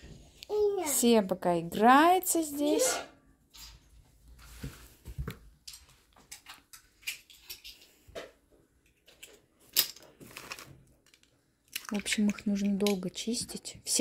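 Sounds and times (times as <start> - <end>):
shellfish shells clicking: 11.0 - 13.1.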